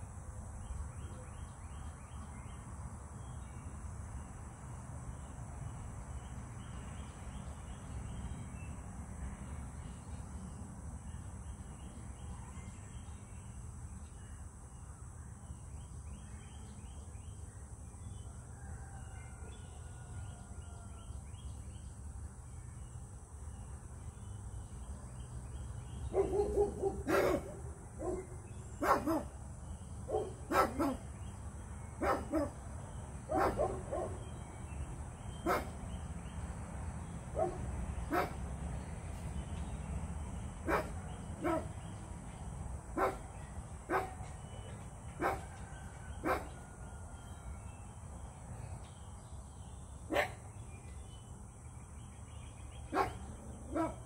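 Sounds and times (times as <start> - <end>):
dog barking: 26.1 - 29.3, 30.1 - 31.0, 32.0 - 32.6, 33.3 - 34.2, 35.4 - 35.7, 37.4 - 38.4, 40.7 - 41.7, 43.0 - 43.2, 43.9 - 44.2, 45.2 - 45.5, 46.2 - 46.5, 50.1 - 50.4, 52.9 - 54.0.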